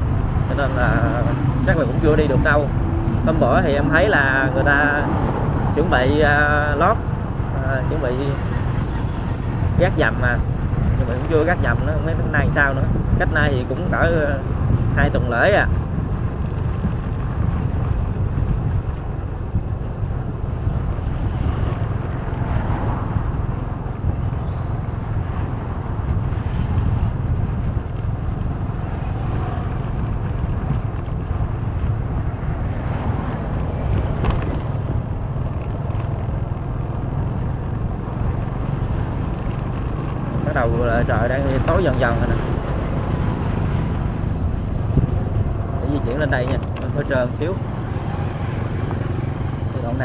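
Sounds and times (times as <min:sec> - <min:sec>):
road vehicle rumble: 0:00.0 - 0:50.0
wind buffeting microphone: 0:00.0 - 0:50.0.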